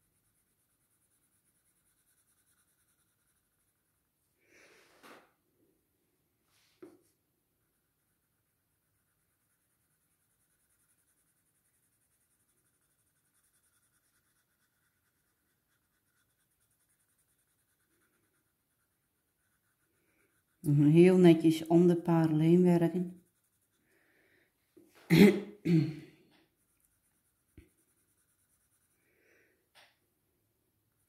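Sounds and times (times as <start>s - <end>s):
pencil scratching on paper: 0.0s - 4.2s, 6.8s - 24.0s, 26.4s - 29.1s.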